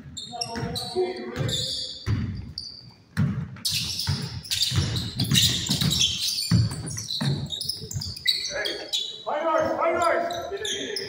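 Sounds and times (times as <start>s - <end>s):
shoes squeaking on court: 0.0s - 11.0s
basketball bouncing on wooden floor: 0.4s - 8.3s.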